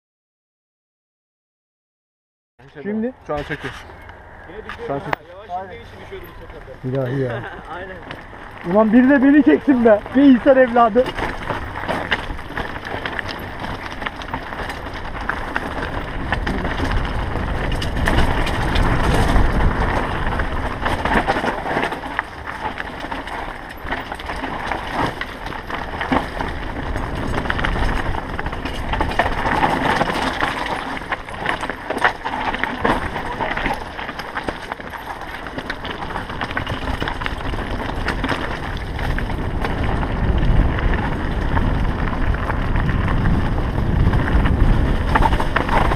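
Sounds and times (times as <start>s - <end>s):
bike rattling: 2.6s - 45.9s
tyres clattering over stones: 5.8s - 39.8s, 44.8s - 45.9s
wind on microphone: 14.8s - 22.6s, 36.1s - 45.9s.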